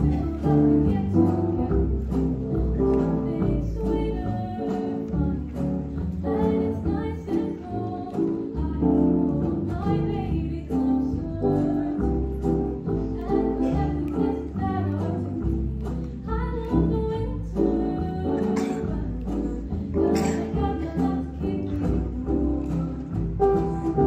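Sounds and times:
women singing into microphones: 0.0 - 2.1, 3.2 - 23.3
instrumental accompaniment with bass: 0.0 - 24.0.

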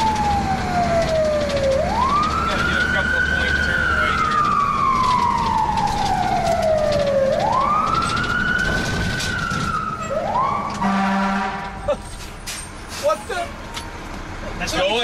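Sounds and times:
fire engine siren wailing: 0.0 - 12.0
low horn blast: 10.7 - 11.9.

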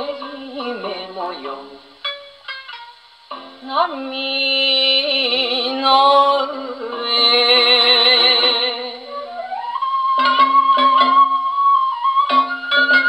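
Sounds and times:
person singing with vibrato: 0.0 - 2.0, 3.6 - 11.1
gramophone record music: 0.0 - 13.0
flute-like melody: 5.3 - 13.0.

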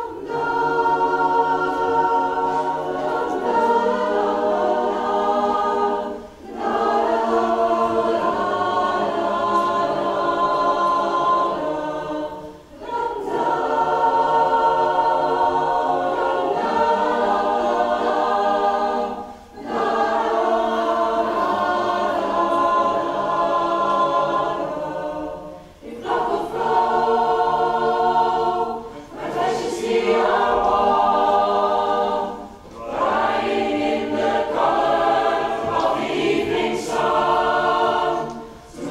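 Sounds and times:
mixed choir singing chords: 0.0 - 38.9.

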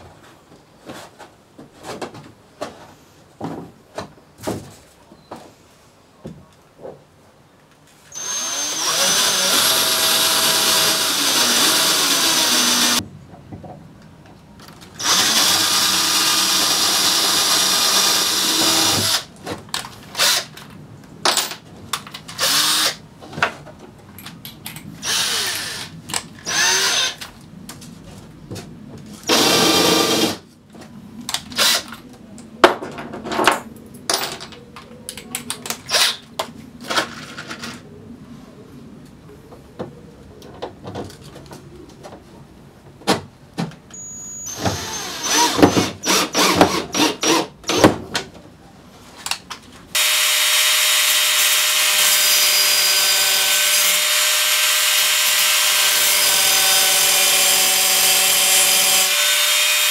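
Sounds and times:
cordless drill running into wood: 8.1 - 13.0, 15.0 - 19.3, 22.4 - 23.0, 25.0 - 27.2, 29.3 - 30.4, 44.4 - 47.8, 50.0 - 59.9.

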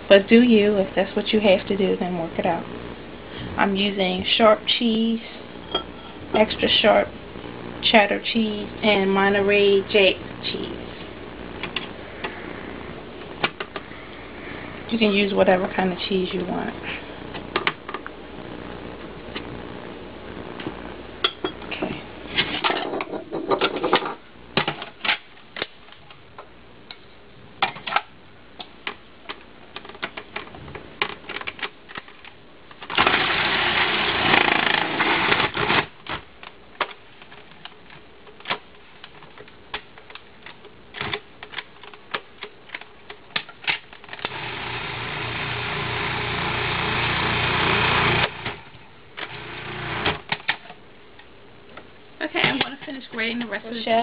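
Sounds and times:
food processor grating cheese: 32.9 - 35.8, 44.1 - 48.6, 49.2 - 50.2.

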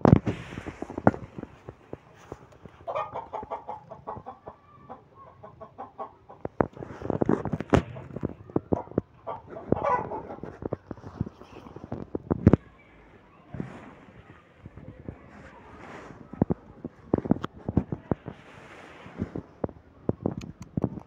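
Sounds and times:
cat fur rubbing on phone: 0.2 - 2.9, 6.6 - 8.4, 9.5 - 12.0, 14.8 - 19.7.

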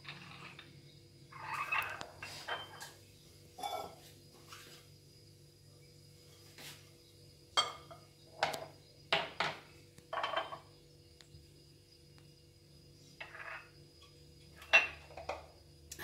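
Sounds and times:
glass bowl knocking and scraping: 1.4 - 2.9, 3.6 - 4.1, 7.6 - 10.7, 13.2 - 13.8, 14.6 - 15.5.

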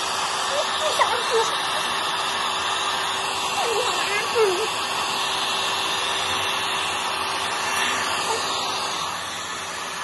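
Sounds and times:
hair dryer blowing: 0.0 - 10.0.

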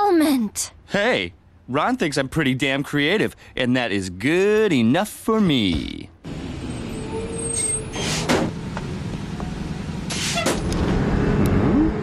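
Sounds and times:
street traffic: 6.1 - 12.0
vehicle engine running: 8.5 - 12.0.

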